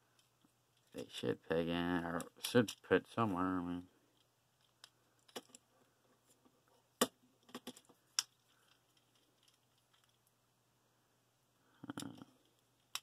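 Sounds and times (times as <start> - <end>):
plastic parts clicking and rattling: 2.1 - 2.9, 4.1 - 6.5, 7.4 - 10.3.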